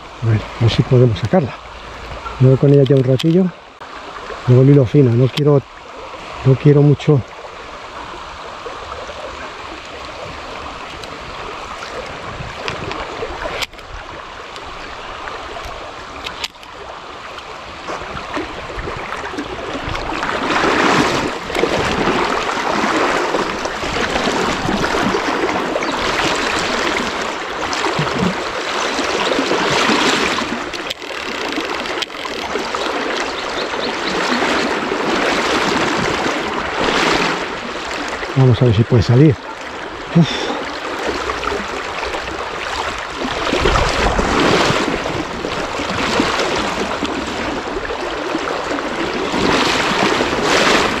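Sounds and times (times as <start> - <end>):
river water rushing: 0.0 - 51.0
sharp clicks: 30.6 - 33.5.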